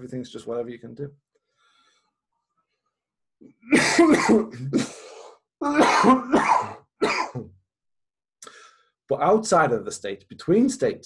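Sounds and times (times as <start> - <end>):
man coughing: 3.6 - 7.6.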